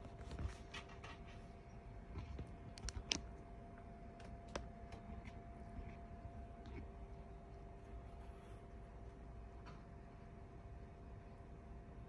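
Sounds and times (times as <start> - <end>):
small clicks and rustles: 2.1 - 3.4.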